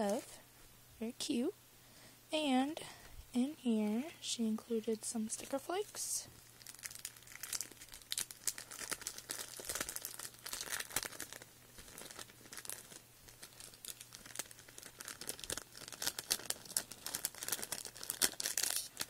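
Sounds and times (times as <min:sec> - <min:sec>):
plastic and paper crinkling: 0:06.5 - 0:19.0.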